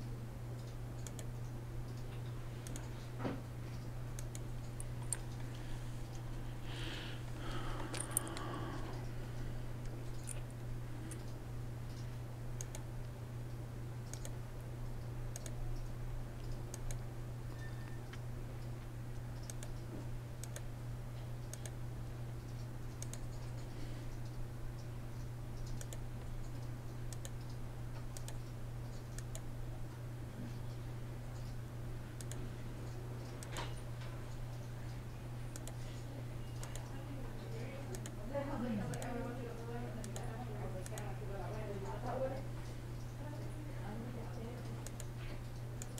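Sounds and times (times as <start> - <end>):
steady low hum: 0.0 - 45.9
mouse and keyboard clicks: 25.6 - 29.4.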